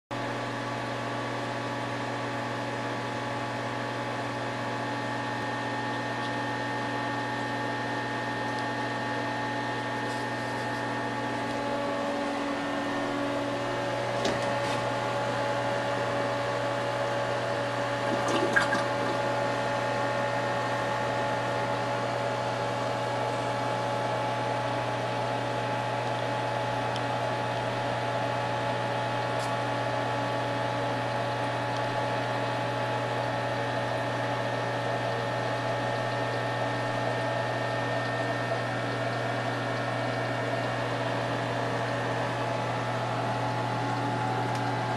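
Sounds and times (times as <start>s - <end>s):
aquarium pump hum: 0.1s - 44.9s
circulating water rushing: 17.5s - 20.3s.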